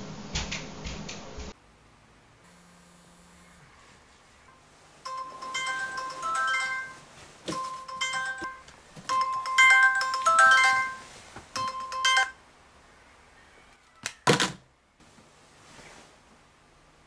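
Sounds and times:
electronic ringtone beeping: 5.1 - 12.4.

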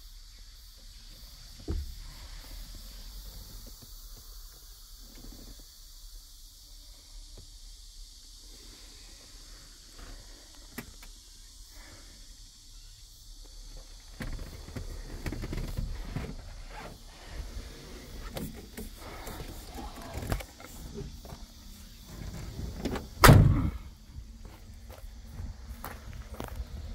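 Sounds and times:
handling and movement noises: 13.8 - 23.2
truck door slamming: 22.2 - 23.9.

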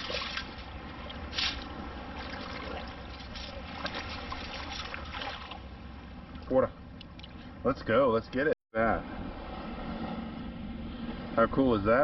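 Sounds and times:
loud water splash: 0.0 - 5.6
water draining from a scoop: 0.0 - 5.6.

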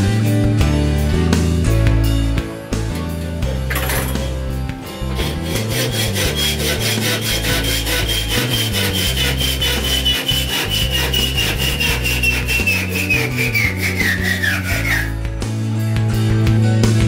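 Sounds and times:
hacksaw cutting metal rod: 3.7 - 4.4, 5.1 - 15.2.

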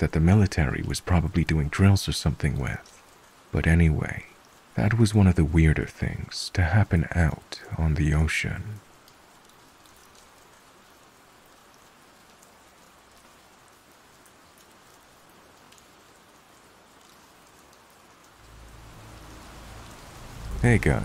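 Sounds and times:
faint steady rain hiss: 0.0 - 21.0
raindrops pattering: 0.0 - 21.0
low rumble: 18.4 - 21.0.

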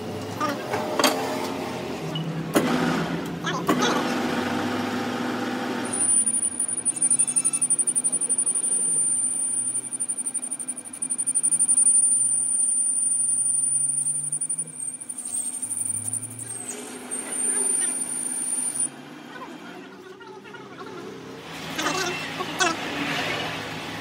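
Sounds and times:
lathe tool bit squealing: 5.8 - 18.9.

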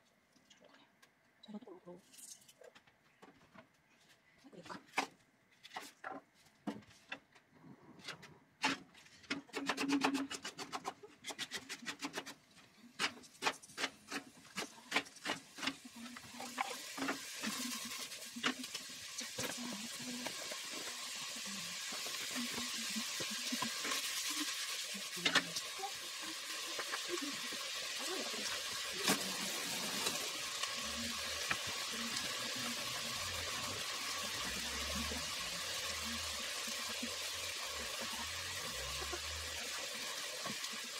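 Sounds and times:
vegetables sizzling in a pot: 11.3 - 40.9.

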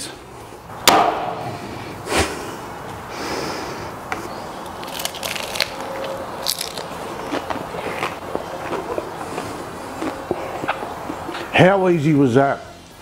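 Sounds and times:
crackly chewing: 4.6 - 11.6.

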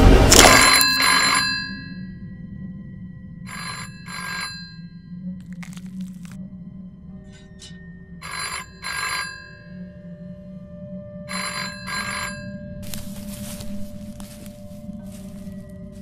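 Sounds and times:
low steady drone: 0.0 - 16.0
telephone ringing: 0.3 - 2.2, 3.5 - 5.9, 8.2 - 9.9, 11.3 - 12.9.

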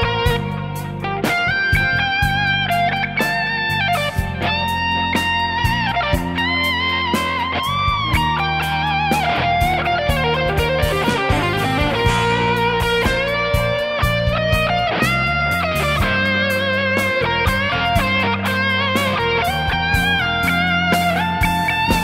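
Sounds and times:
bass notes: 0.0 - 22.0
electric guitar lead: 0.0 - 22.0
drum beat: 7.3 - 22.0.

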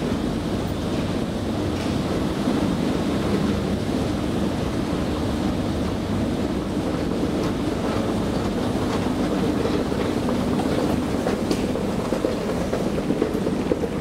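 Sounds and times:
escalator running rumble: 0.0 - 14.0.

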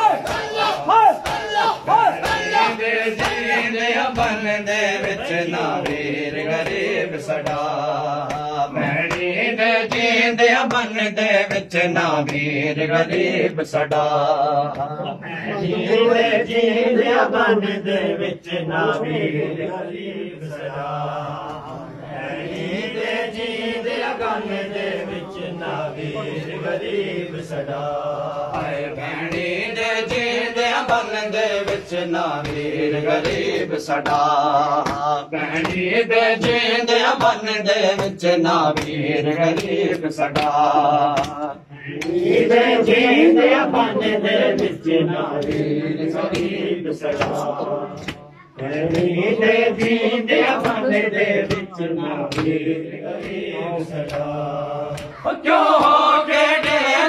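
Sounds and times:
chest-beating slaps: 0.0 - 13.3, 13.9 - 15.1, 28.4 - 42.3, 44.5 - 56.9
men chanting a lament: 0.0 - 57.0.

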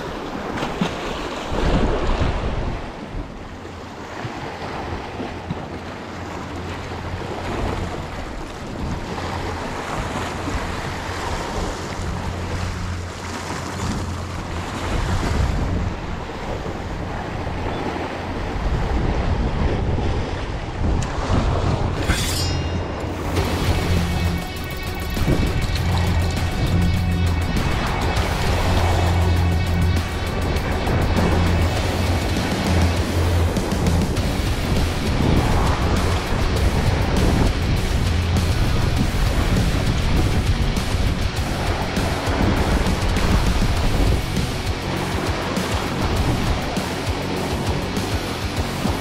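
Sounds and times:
waves washing on rocks: 0.0 - 49.0
wind buffeting microphone: 1.5 - 22.2, 22.8 - 49.0
steady low hum: 21.9 - 48.9.

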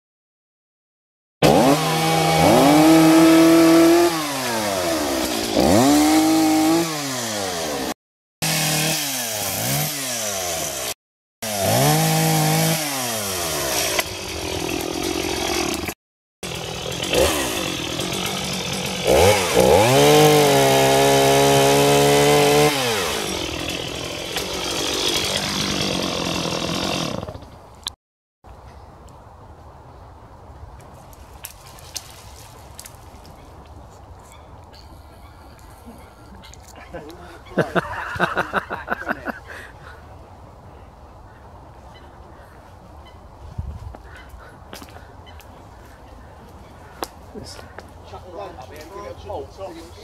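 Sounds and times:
chainsaw cutting branches: 1.4 - 27.5
chainsaw revving and idling: 1.4 - 27.5.

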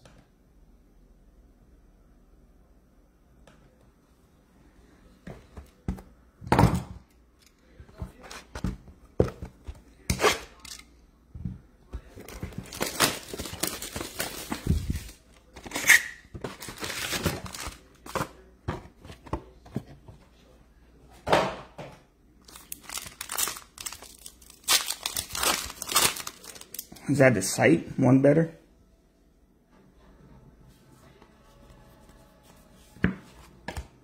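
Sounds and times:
wrappers ripping and crinkling: 12.5 - 17.9, 22.4 - 27.0.

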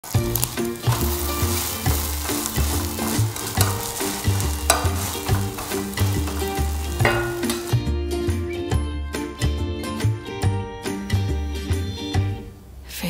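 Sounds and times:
pancake sizzling in a skillet: 0.0 - 7.8
background music with bass line: 0.0 - 12.5
metal spatula scraping: 0.3 - 7.8.

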